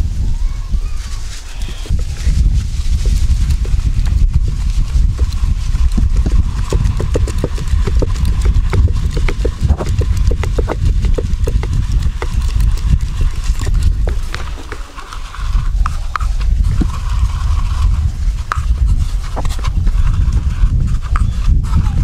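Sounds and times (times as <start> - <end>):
low rumble: 1.9 - 14.4
sieve knocking and rattling: 5.1 - 15.0.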